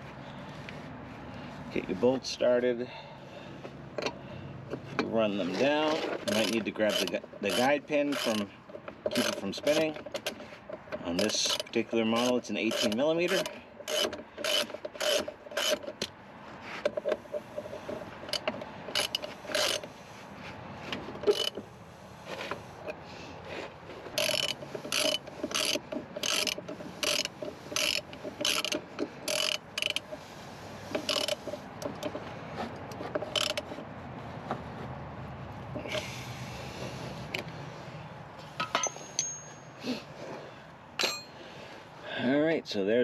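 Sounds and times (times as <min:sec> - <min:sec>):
hand ratchet clicking: 0:06.2 - 0:10.4, 0:11.2 - 0:16.1, 0:16.8 - 0:19.9, 0:21.2 - 0:21.6, 0:24.1 - 0:30.2, 0:30.8 - 0:32.2, 0:32.8 - 0:33.8.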